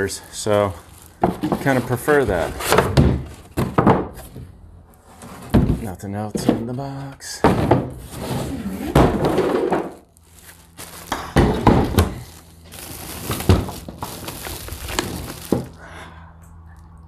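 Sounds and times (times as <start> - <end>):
plastic packaging crinkling: 0.0 - 2.6, 9.9 - 15.9.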